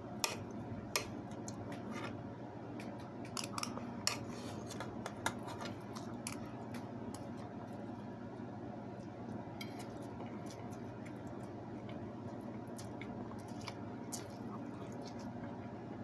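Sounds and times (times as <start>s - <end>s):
low steady hum: 0.0s - 16.0s.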